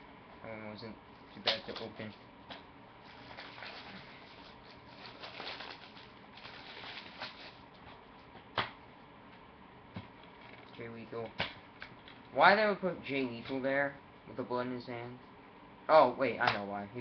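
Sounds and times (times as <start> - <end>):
plastic crinkling and rustling: 3.1 - 7.8.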